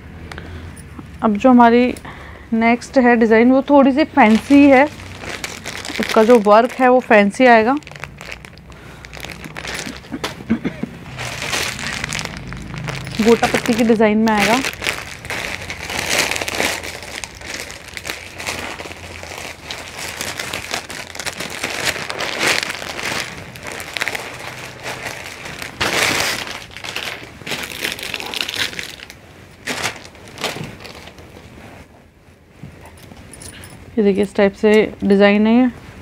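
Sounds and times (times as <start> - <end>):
plastic packaging crinkling: 4.0 - 31.5.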